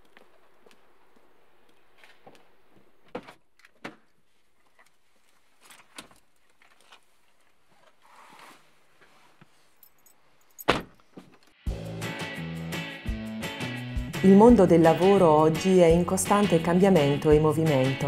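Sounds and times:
rustling of someone climbing in: 0.0s - 11.5s.

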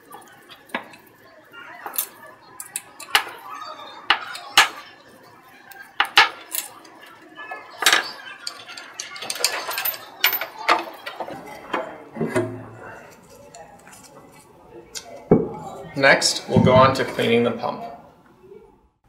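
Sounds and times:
metal clicks and clinks: 7.8s - 11.2s.

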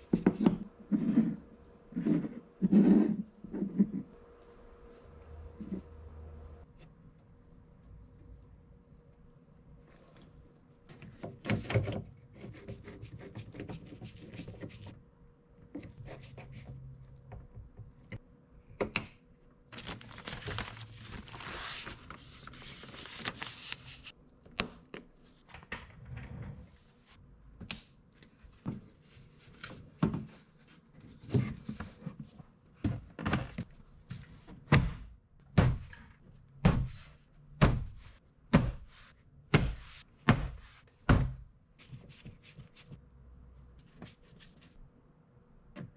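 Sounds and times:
plastic sheet rustling: 19.8s - 24.1s.

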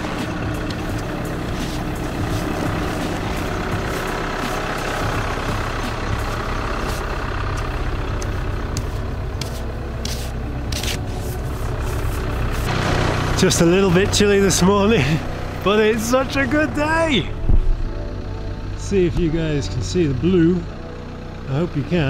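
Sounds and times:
snow brush scraping snow: 0.0s - 7.7s, 8.8s - 13.0s
van engine idling: 0.0s - 22.0s.

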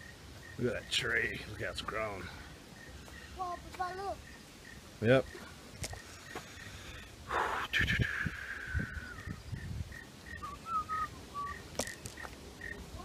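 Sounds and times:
birds calling: 0.0s - 13.0s
footsteps on dirt track: 3.0s - 4.0s, 11.7s - 12.4s.

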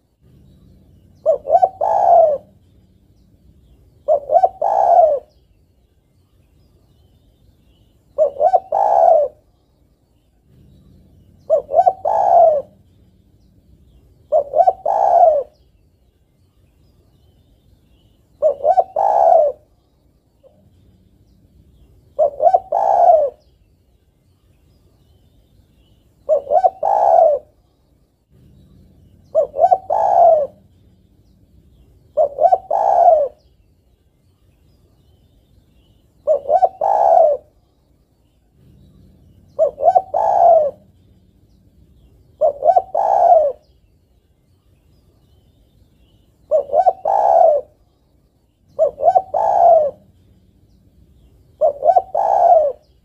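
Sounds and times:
dove cooing: 0.2s - 5.4s, 8.1s - 9.5s, 10.4s - 15.7s, 18.4s - 19.8s, 20.4s - 23.5s, 26.2s - 27.6s, 28.3s - 33.5s, 35.8s - 37.6s, 38.5s - 43.8s, 46.4s - 47.9s, 48.7s - 53.0s.

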